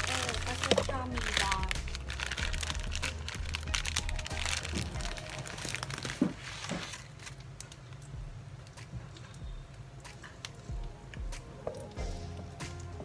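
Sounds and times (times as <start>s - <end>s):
plastic food packet crackling: 0.0s - 9.4s.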